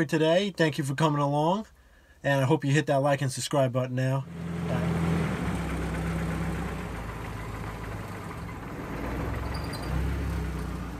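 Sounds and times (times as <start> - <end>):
car engine running at low speed: 4.2 - 10.9.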